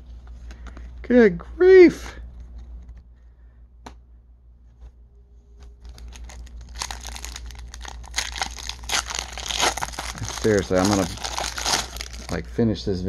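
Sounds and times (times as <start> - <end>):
foil wrapper tearing and crinkling: 5.8 - 12.4.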